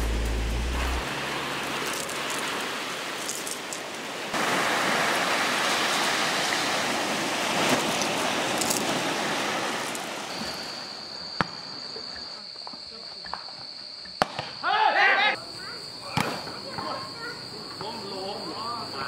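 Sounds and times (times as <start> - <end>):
surf washing onto beach: 0.0 - 11.0.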